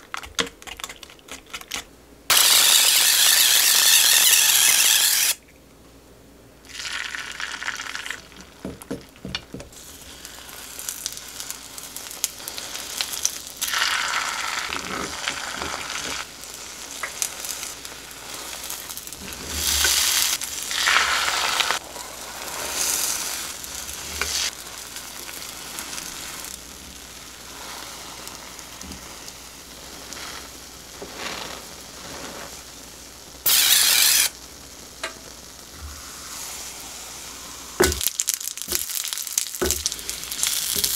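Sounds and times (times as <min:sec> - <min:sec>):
egg sizzling in a pan: 0:02.3 - 0:05.4, 0:06.6 - 0:40.9
oil spray hiss: 0:35.7 - 0:37.9.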